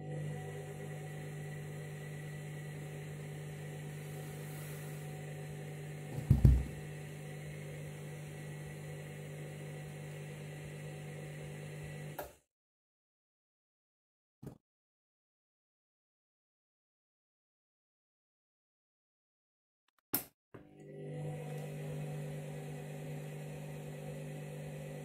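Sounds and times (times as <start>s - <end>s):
washing machine motor hum: 0.0s - 12.3s, 20.6s - 25.0s
loud low thump: 6.2s - 6.8s.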